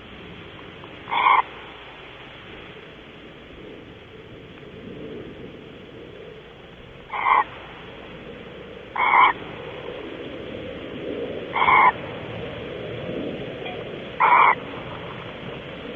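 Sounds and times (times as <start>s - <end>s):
steady camera hiss: 0.0s - 15.9s
barn owl hissing calls: 0.7s - 3.0s, 6.1s - 12.4s, 14.0s - 15.2s.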